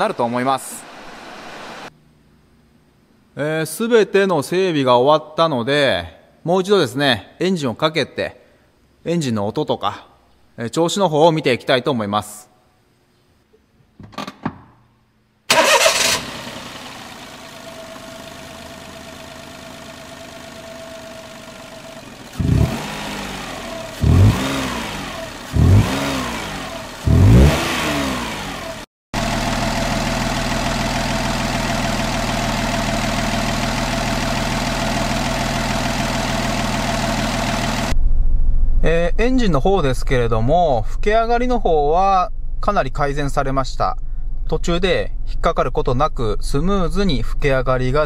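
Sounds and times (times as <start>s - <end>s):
engine revving: 15.5s - 18.2s, 22.3s - 38.0s
car engine starting and idling: 15.5s - 48.0s.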